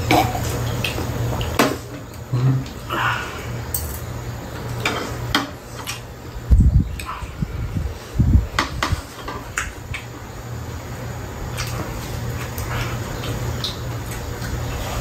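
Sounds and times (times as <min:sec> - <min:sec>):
steady low hum: 0:00.0 - 0:15.0
food being chewed: 0:11.4 - 0:15.0.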